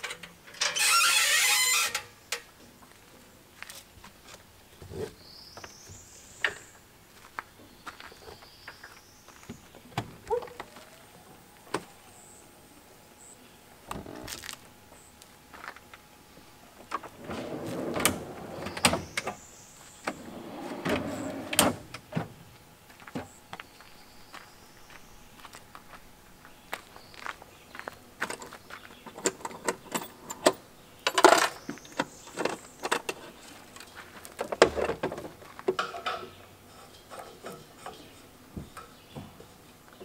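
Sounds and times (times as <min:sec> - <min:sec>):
handling clicks and knocks: 0:28.2 - 0:40.0.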